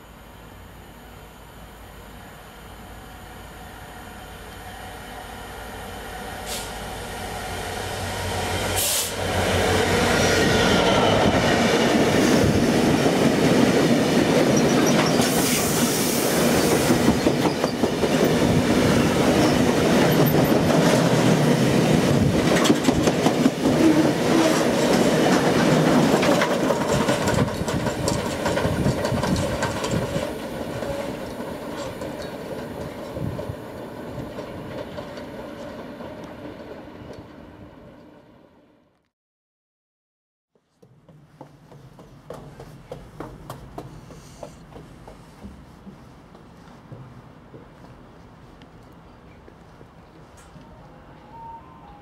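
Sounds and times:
diesel locomotive engine: 0.0s - 38.8s
wheels clickety-clack on rail joints: 8.7s - 38.2s, 40.8s - 50.8s.

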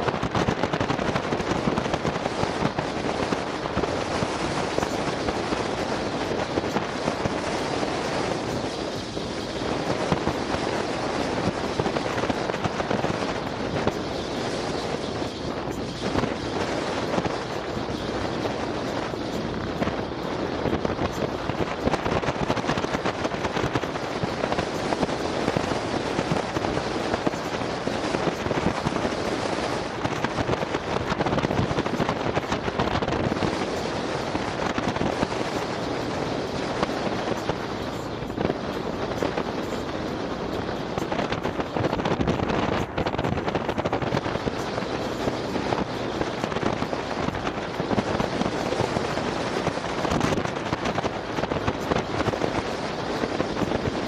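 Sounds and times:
road noise: 0.0s - 54.0s
vehicle engine: 0.0s - 54.0s
wind buffeting microphone: 0.0s - 54.0s.

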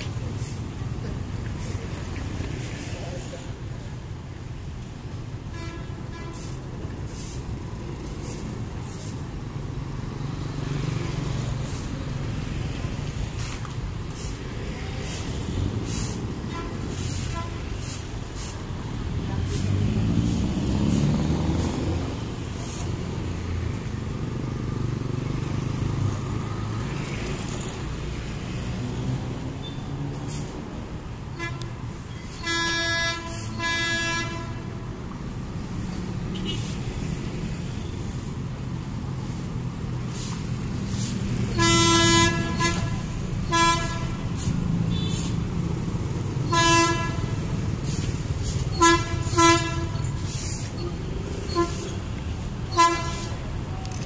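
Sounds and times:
short hissing swishes: 6.3s - 9.6s, 11.3s - 23.8s, 35.2s - 43.3s, 43.9s - 46.0s, 47.2s - 53.5s
motorbike and car engines: 6.4s - 54.0s.

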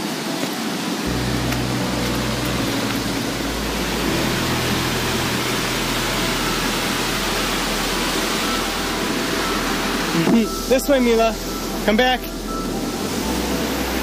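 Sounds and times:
waterfall rushing: 0.0s - 14.0s.

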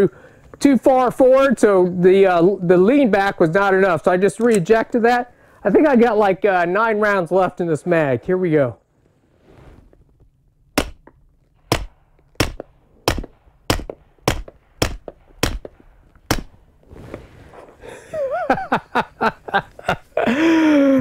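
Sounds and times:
pistol shots: 10.8s - 16.7s.

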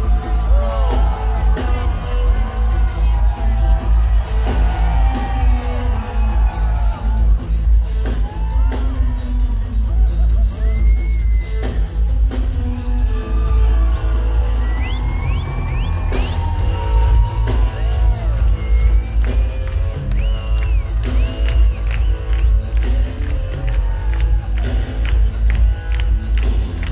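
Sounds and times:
heavy bass line: 0.0s - 10.8s
rising whoops: 12.9s - 21.9s.

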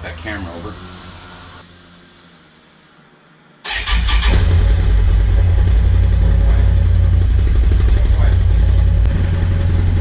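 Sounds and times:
atv engine starting and idling: 3.7s - 10.0s.

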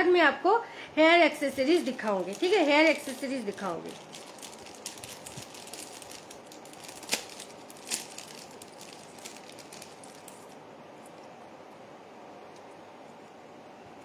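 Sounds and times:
packaging rustling: 1.6s - 11.3s.

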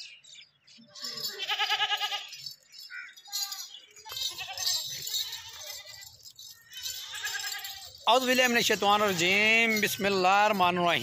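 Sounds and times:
goats bleating: 1.1s - 2.4s, 4.1s - 6.2s, 6.8s - 8.0s.

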